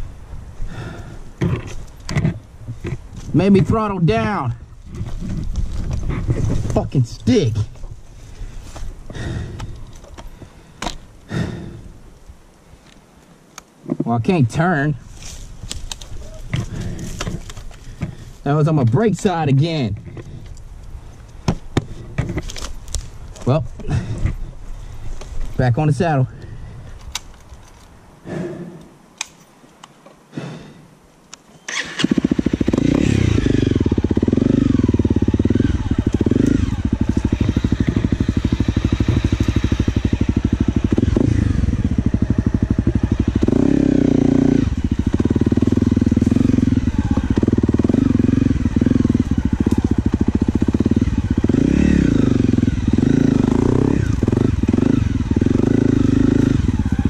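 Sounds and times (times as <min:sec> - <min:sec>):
dirt bike engine revving: 0:09.1 - 0:09.8, 0:31.7 - 0:57.0.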